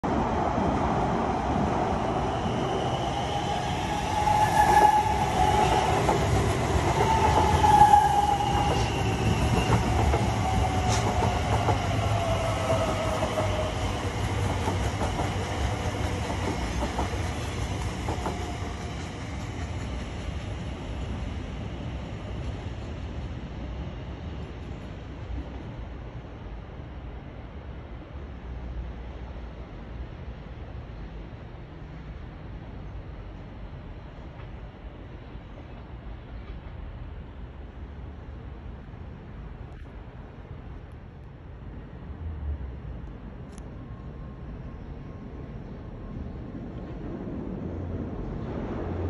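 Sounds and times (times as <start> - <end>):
electric train running past: 0.0 - 49.0
train wheels clicking: 3.0 - 21.2.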